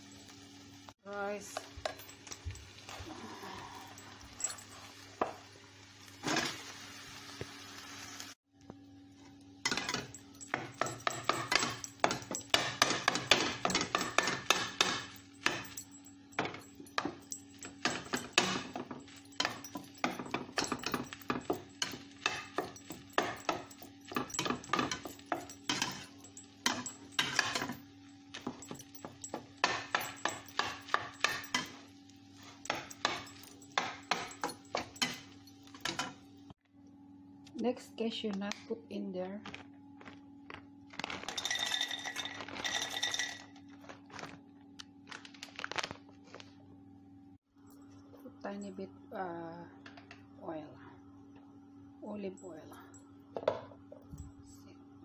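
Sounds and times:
light sizzle: 0.0 - 36.6.

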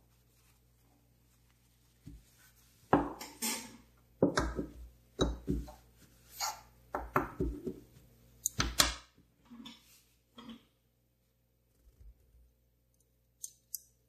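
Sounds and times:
paper tissue rustling: 0.0 - 2.9.

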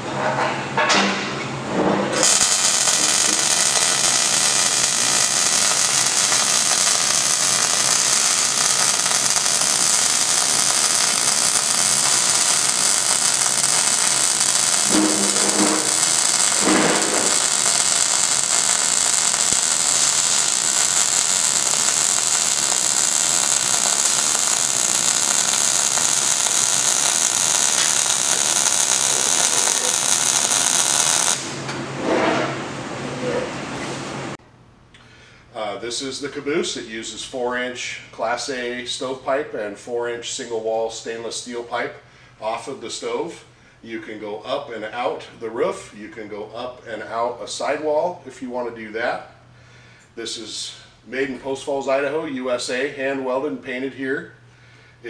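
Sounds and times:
welding arc hissing: 2.1 - 31.6.

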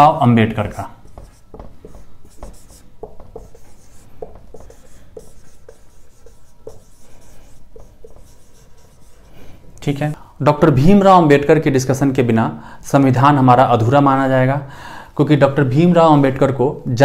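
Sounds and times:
marker squeaking on whiteboard: 0.7 - 9.4.

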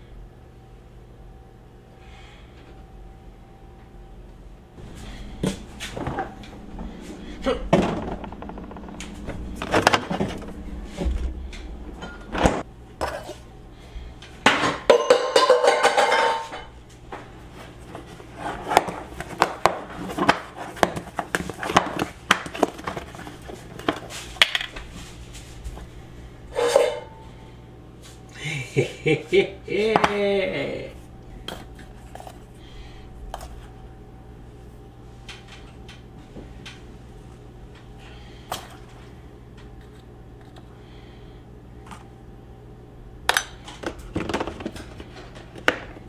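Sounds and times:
items knocking and clinking on shelves: 5.4 - 13.2, 14.4 - 16.7, 17.9 - 24.8, 43.3 - 46.0.

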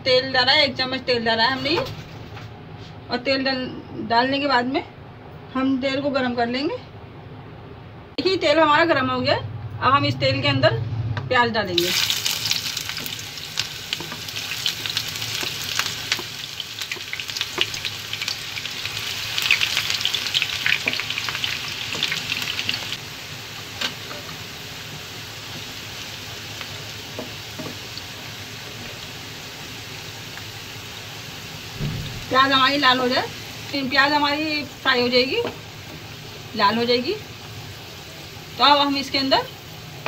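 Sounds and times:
onions sizzling in oil: 11.8 - 40.0.

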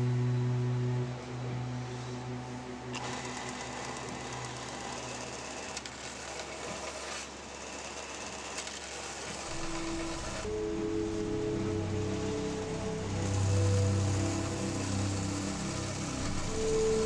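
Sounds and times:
music: 0.0 - 6.1, 9.5 - 17.0
belt grinder running: 2.9 - 10.4, 13.2 - 17.0.

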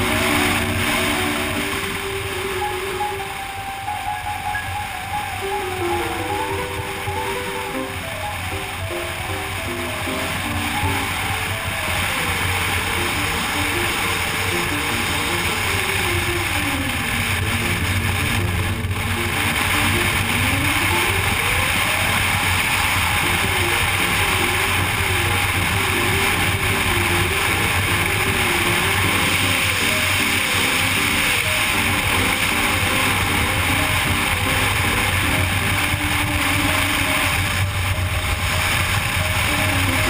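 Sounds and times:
background music: 0.0 - 40.0
motorcycle engine running: 5.5 - 40.0.

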